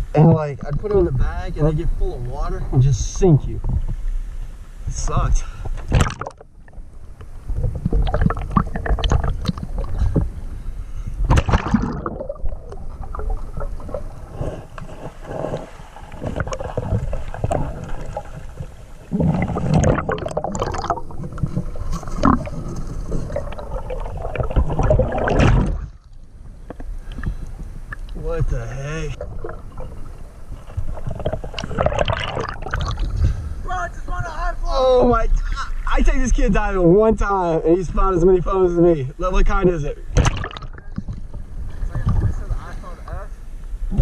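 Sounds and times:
underwater river rumble and gurgle: 2.6 - 5.0, 5.6 - 33.7, 40.0 - 44.0
underwater clicks and knocks: 5.7 - 10.3, 19.4 - 28.2, 40.2 - 42.4.

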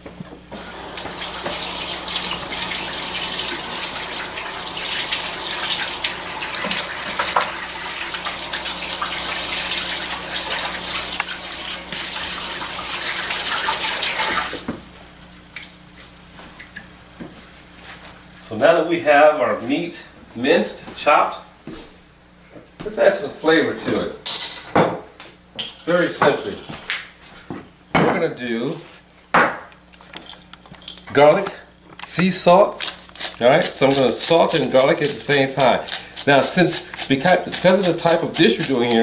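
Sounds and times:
tap running: 0.2 - 14.8, 32.8 - 39.0
hands washing under water: 32.8 - 39.0.

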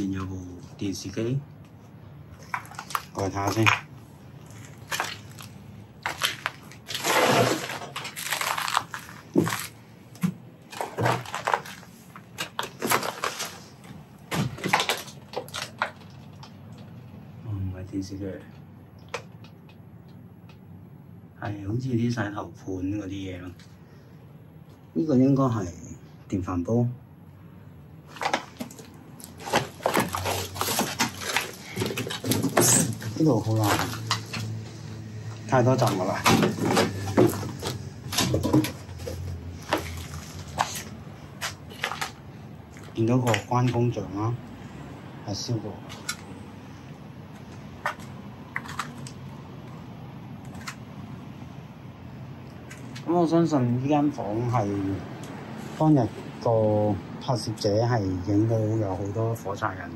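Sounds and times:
footsteps crunching over debris: 4.4 - 16.0, 28.1 - 34.8, 35.8 - 43.0.

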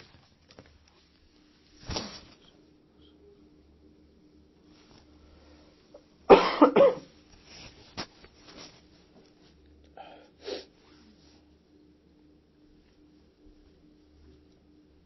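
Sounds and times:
faint steady hum: 0.0 - 15.0
person coughing: 6.3 - 7.1.

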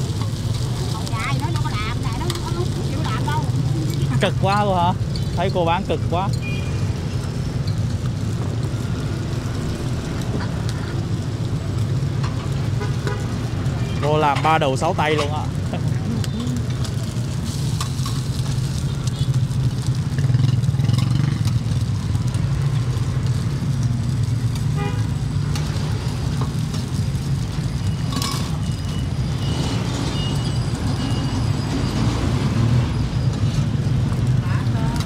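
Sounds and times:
street traffic rumble: 0.0 - 35.0
car horn: 12.8 - 14.1, 24.7 - 25.1.

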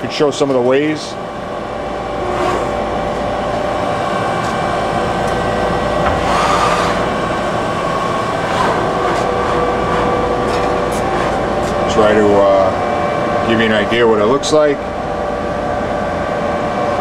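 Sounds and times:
mechanical hum: 0.0 - 17.0
machine servo whine: 6.0 - 7.2.

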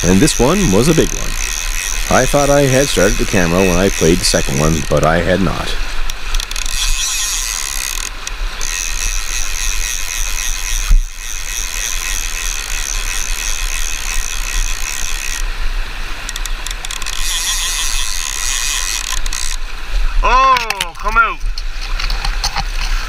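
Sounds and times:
river water rushing: 0.0 - 10.3
fishing reel drag buzzing: 0.0 - 19.7.

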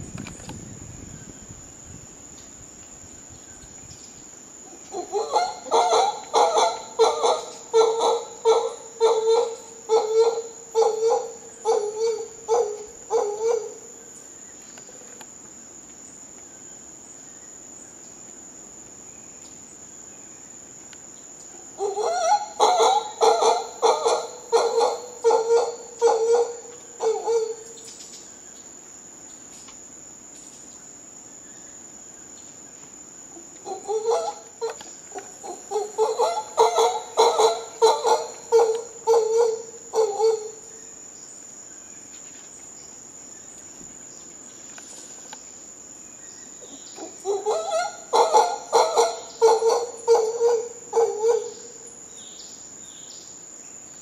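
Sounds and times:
high insect drone: 0.0 - 54.0
howler monkeys howling: 4.6 - 13.9, 21.5 - 27.8, 33.3 - 40.7, 46.6 - 52.0.

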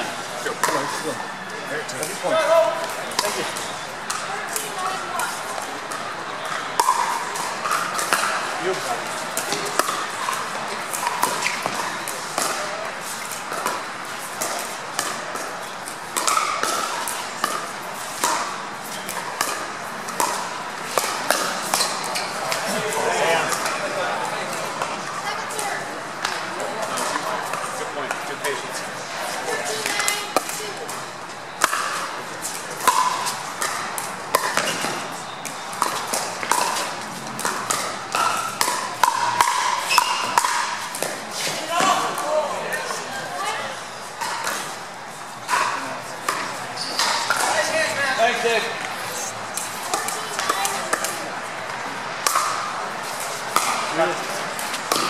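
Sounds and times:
paddles hitting pickleball: 2.0 - 28.6, 29.5 - 43.1, 44.2 - 44.8, 45.4 - 55.0
paddles hitting plastic ball: 31.6 - 41.2, 53.5 - 55.0.

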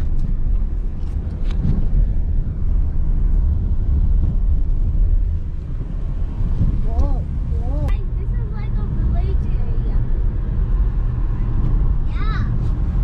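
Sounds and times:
car driving on rough road: 0.0 - 13.0.

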